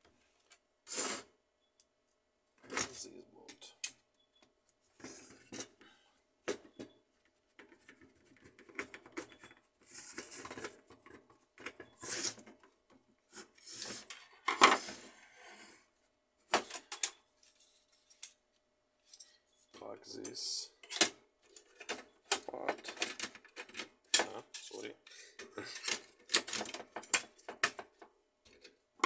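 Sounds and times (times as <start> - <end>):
clinks of small parts handled: 19.0 - 19.5.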